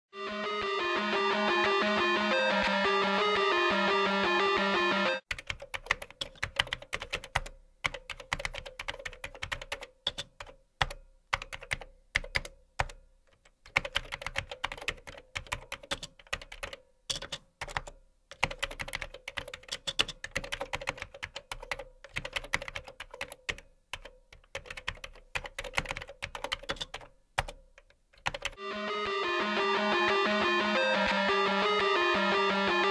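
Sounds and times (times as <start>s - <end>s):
guitar-led music: 0.1s - 5.2s, 28.6s - 32.9s
fast typing on keyboard: 5.3s - 28.6s.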